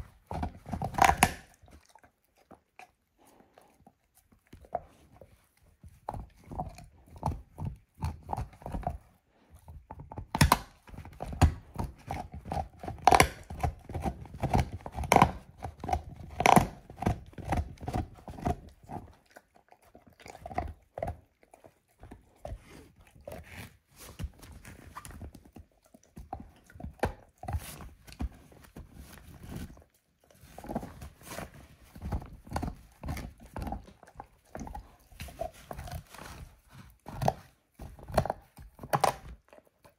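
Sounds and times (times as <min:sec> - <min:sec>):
dog crunching a bone: 0:00.0 - 0:39.9.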